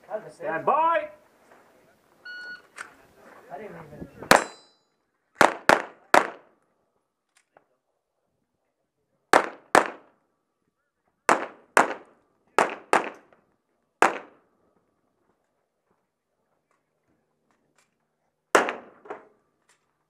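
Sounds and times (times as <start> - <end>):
handgun shots echoing: 4.3 - 4.7.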